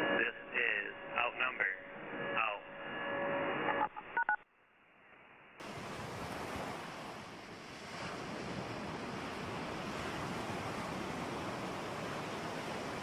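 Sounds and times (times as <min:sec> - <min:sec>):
radio static: 0:00.0 - 0:04.4
ocean surf on a beach: 0:05.6 - 0:13.0.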